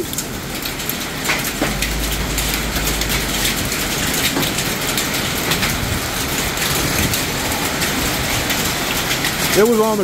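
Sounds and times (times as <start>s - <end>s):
heavy rain pouring: 0.0s - 10.0s
low rumble: 1.4s - 7.1s.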